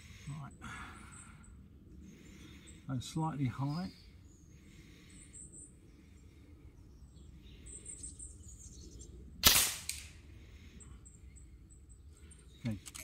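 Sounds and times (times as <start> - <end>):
air rifle shot crack: 9.4 - 10.2.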